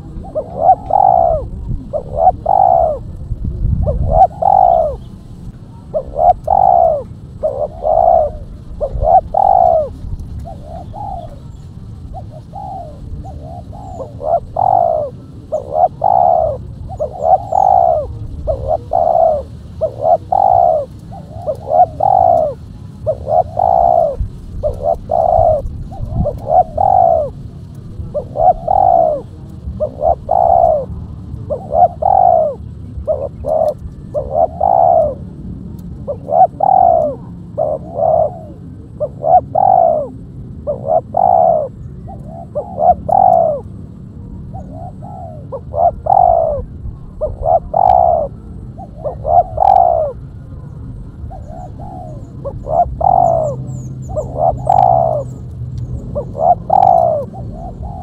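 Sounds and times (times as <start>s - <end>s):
dove cooing: 0.0s - 58.0s.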